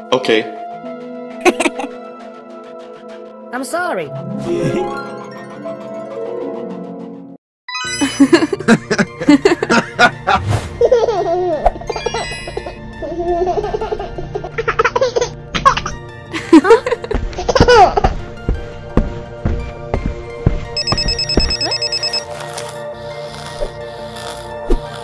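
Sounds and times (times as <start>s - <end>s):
cheerful background music: 0.0s - 25.0s
baby giggling and laughing: 10.8s - 16.0s, 16.7s - 18.1s.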